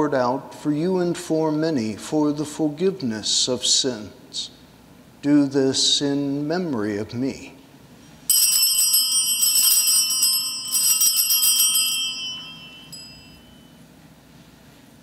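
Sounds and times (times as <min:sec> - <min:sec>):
altar bells jingling: 0:08.3 - 0:13.8.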